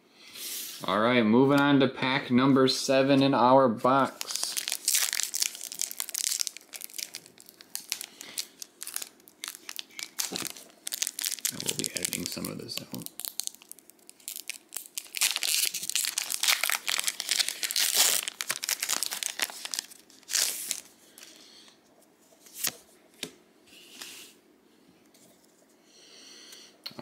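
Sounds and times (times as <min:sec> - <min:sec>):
wrapper tearing and crinkling: 0:04.1 - 0:20.9.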